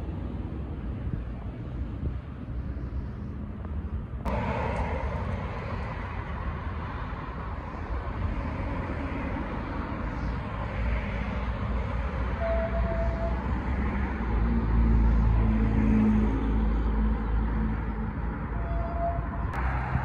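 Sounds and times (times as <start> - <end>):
road traffic rumble: 0.0 - 20.0
heavy low-pitched wash: 0.7 - 10.0.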